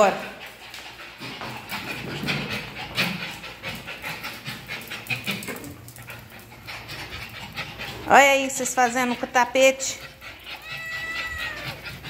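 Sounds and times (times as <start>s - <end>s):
dog claws clicking on tiles: 0.4s - 8.0s.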